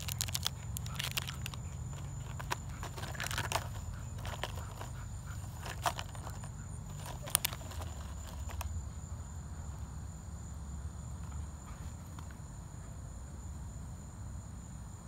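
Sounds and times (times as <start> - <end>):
plastic bottle crinkling: 0.0 - 8.7
high-pitched insect hum: 0.0 - 15.0.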